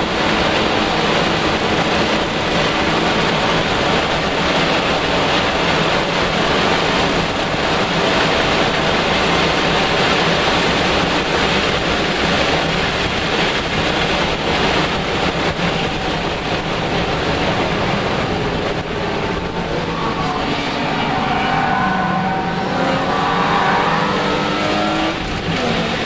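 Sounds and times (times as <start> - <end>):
race car engine running hard: 0.0 - 26.0
wind and road rush: 0.0 - 26.0.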